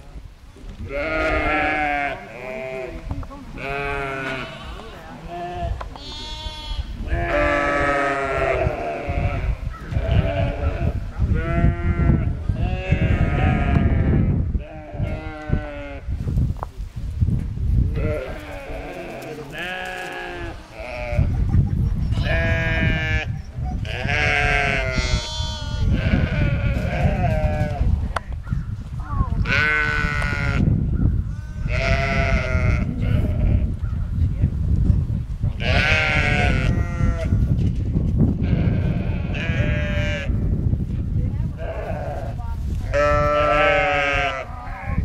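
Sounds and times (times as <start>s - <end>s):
sheep bleating: 0.9s - 3.0s, 3.6s - 16.1s, 18.0s - 21.3s, 22.2s - 27.8s, 29.4s - 30.7s, 31.3s - 33.7s, 35.6s - 37.4s, 38.4s - 40.4s, 41.6s - 45.0s.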